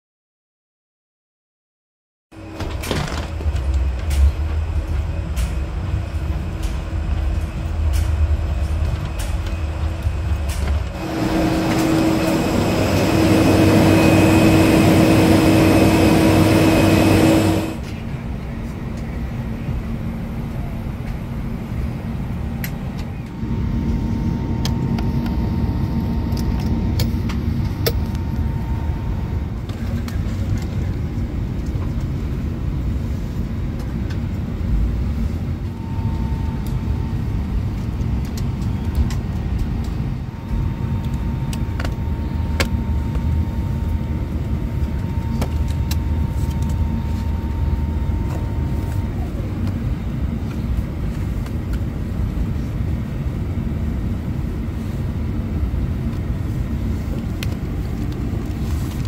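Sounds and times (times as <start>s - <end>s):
ventilation hum: 2.4s - 59.0s
loud rushing noise with drone: 10.5s - 18.7s.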